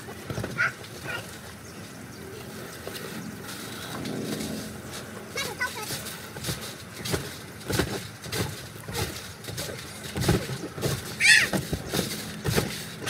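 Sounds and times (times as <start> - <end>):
thumps on trampoline mat: 0.0 - 1.3, 5.6 - 13.0.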